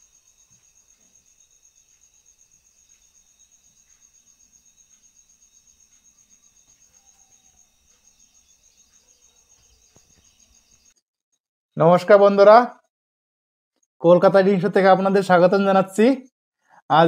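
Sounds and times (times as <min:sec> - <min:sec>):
insect trilling: 0:00.0 - 0:11.0.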